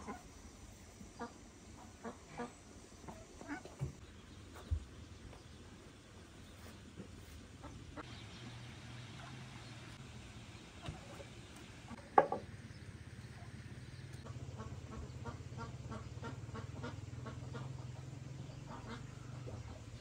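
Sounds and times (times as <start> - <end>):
cutting board knock: 12.2 - 12.4.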